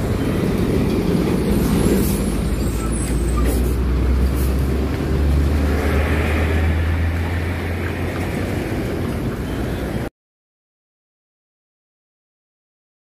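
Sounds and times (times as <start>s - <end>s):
diesel truck engine rumble: 0.0s - 10.1s
road noise: 0.0s - 10.1s.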